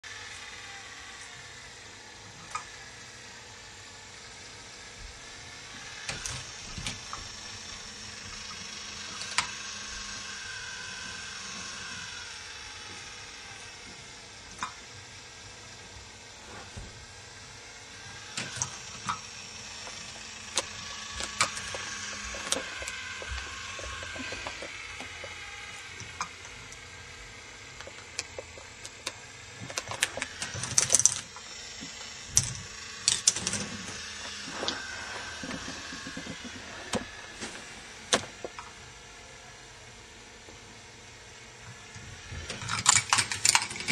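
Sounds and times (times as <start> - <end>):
plastic balls rolling on track: 5.3 - 38.8, 41.7 - 43.9
balls clicking and clacking: 18.3 - 37.5, 42.4 - 43.9.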